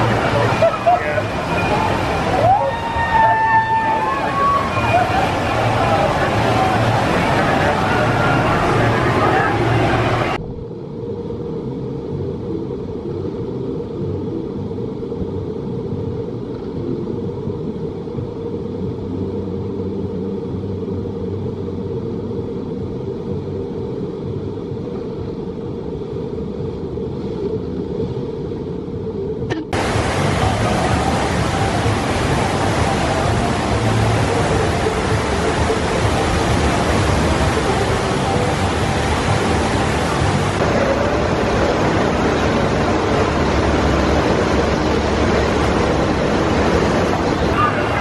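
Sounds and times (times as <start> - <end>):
water rushing down rapids: 0.0 - 10.5, 29.5 - 48.0.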